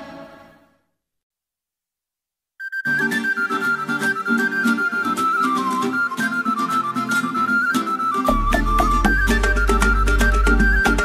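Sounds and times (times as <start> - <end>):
music track: 2.6 - 11.0.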